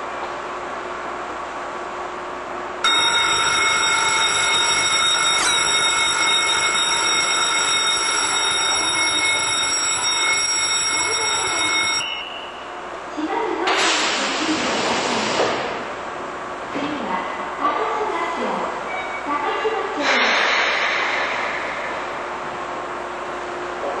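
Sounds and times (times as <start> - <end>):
platform and train hum: 0.0 - 24.0
platform departure bell ringing: 2.8 - 12.9.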